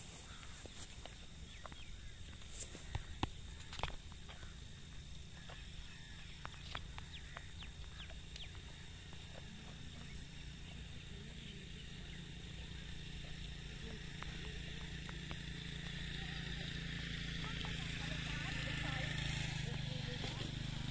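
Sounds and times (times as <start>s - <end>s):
faint bird chirps: 0.2s - 15.0s.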